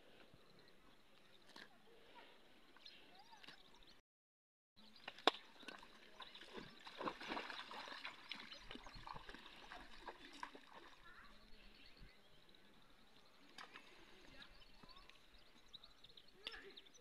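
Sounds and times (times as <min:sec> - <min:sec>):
hooves splashing in muddy puddles: 0:04.8 - 0:16.7.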